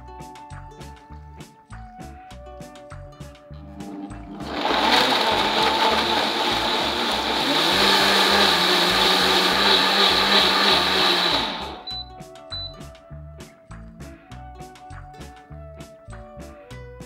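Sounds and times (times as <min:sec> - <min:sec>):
blender motor running: 0:03.8 - 0:11.9.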